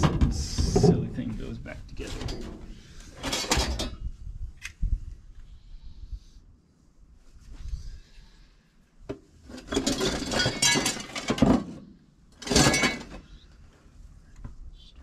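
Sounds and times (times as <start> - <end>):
metal parts clinking in a box: 9.7 - 11.4.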